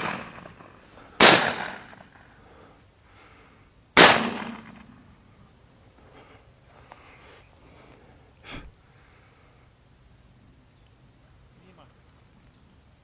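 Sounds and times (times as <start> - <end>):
shotgun shots: 0.0 - 2.1, 4.0 - 5.0.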